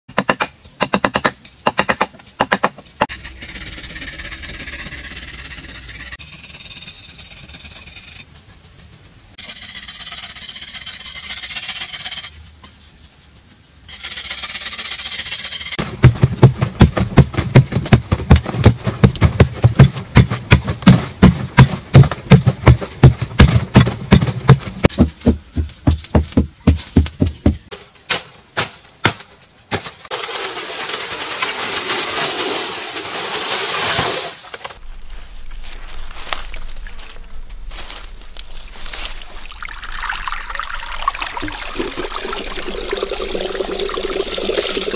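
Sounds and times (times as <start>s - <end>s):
hand tool hacking clay: 0.1s - 2.8s, 15.8s - 30.0s
fast run of hard knocks: 15.8s - 27.7s.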